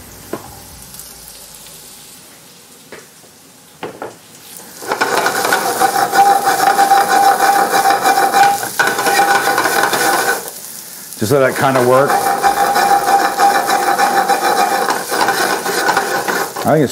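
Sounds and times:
food sizzling in butter: 0:00.2 - 0:16.9
pan scraping on burner grate: 0:04.7 - 0:10.6, 0:11.2 - 0:16.9.

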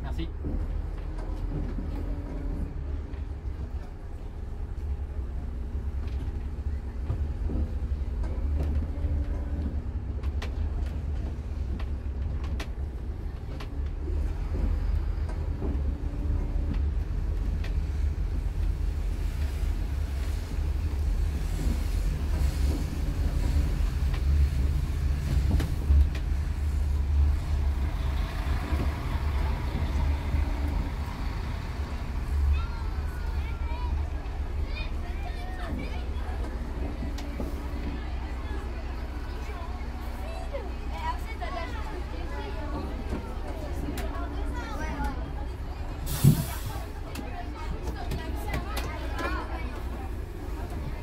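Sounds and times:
bus engine drone: 0:00.0 - 0:51.0.

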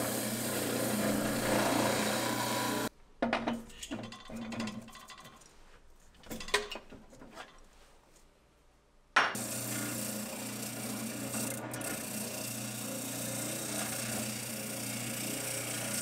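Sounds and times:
sander drum sanding wood: 0:00.0 - 0:02.9
spindle sander motor hum: 0:00.0 - 0:02.9.

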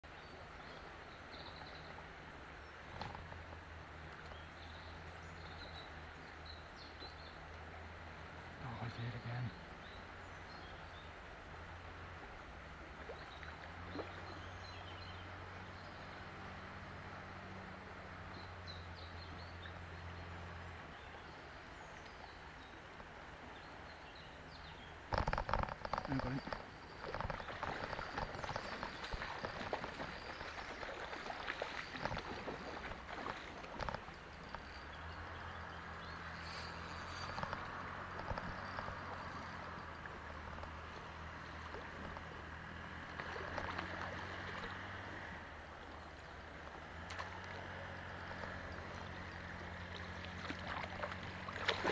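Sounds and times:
river water rushing: 0:00.1 - 0:51.9
water splash: 0:26.0 - 0:34.9, 0:49.8 - 0:51.9.

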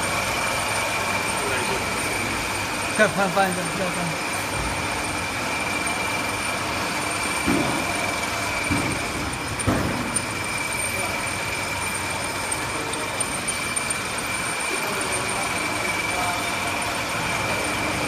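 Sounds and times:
labeling machine humming: 0:00.0 - 0:18.0
machine knocks: 0:09.6 - 0:10.2.

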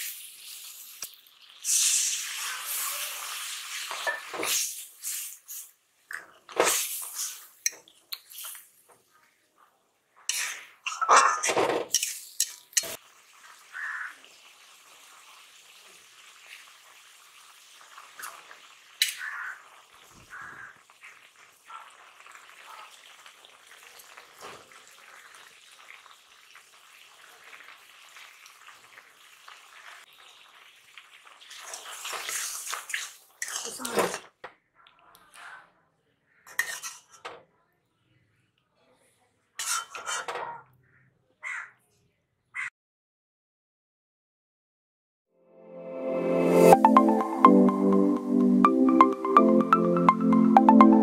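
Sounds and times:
popping in pan: 0:00.0 - 0:04.4
curry simmering and sizzling: 0:00.0 - 0:05.8, 0:11.9 - 0:33.7
metal spatula scraping wok: 0:10.3 - 0:13.0, 0:36.5 - 0:37.2, 0:39.6 - 0:40.3.

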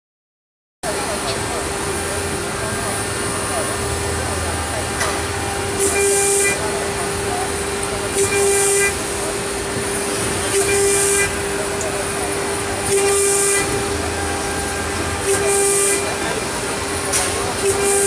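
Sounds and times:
cutter hissing into sheet metal: 0:08.1 - 0:09.1, 0:10.4 - 0:11.5, 0:12.6 - 0:18.0.

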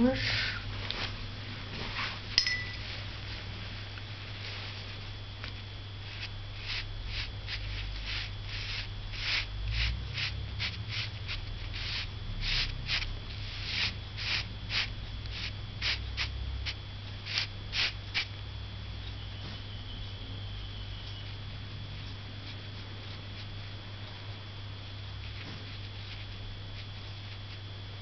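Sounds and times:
steady low hum: 0:00.0 - 0:28.0
dry brush scratching paper: 0:06.0 - 0:18.3, 0:25.2 - 0:27.7.

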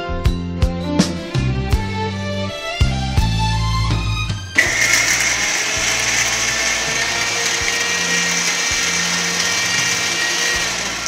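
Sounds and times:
mixer grinder motor whining: 0:04.6 - 0:11.0.

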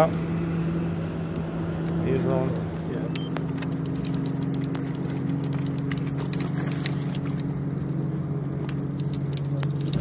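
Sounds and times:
high insect trill: 0:00.0 - 0:10.0
motor with pulsing hum: 0:00.0 - 0:10.0.

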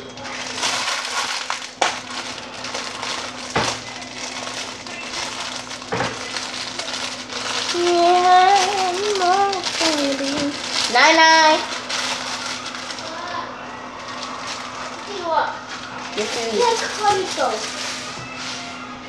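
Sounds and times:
plastic packet crinkling: 0:00.0 - 0:18.8
child humming: 0:07.7 - 0:10.6.

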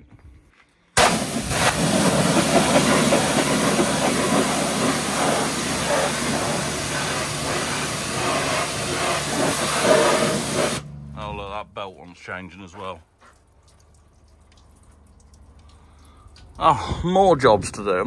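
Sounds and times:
pressure washer spraying metal: 0:01.0 - 0:10.9.

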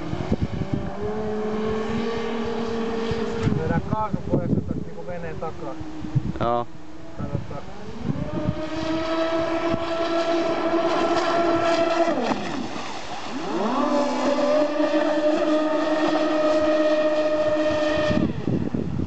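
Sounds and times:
electric motor high whine: 0:00.0 - 0:04.0, 0:04.9 - 0:18.8
water hiss from hull: 0:12.4 - 0:18.1.

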